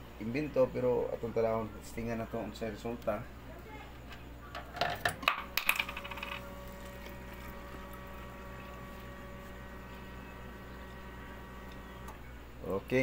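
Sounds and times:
faint machine hum: 0.0 - 13.0
coins clinking into slot: 4.8 - 6.5.

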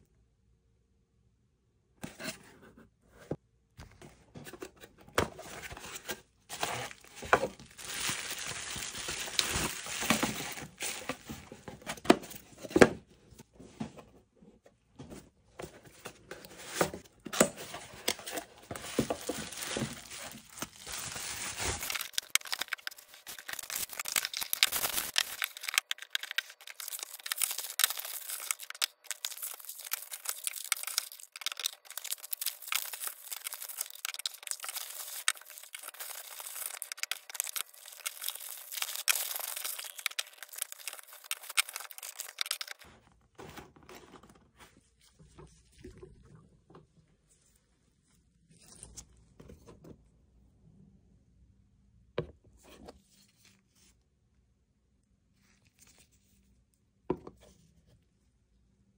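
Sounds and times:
cardboard boxes being opened: 4.6 - 13.0, 15.6 - 44.8
packing paper crinkling and tearing: 5.6 - 11.7, 17.6 - 42.9.

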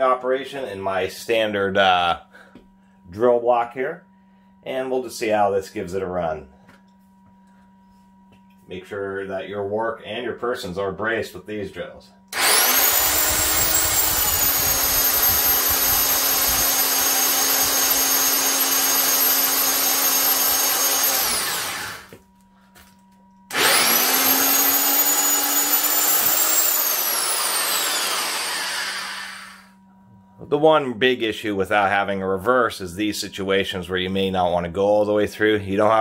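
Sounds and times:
power drill boring into wood: 12.4 - 22.2, 23.5 - 29.7.

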